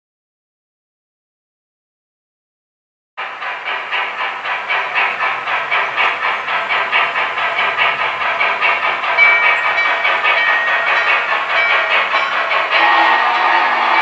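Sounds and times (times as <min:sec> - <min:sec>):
model train steam chuffing: 0:03.2 - 0:14.0.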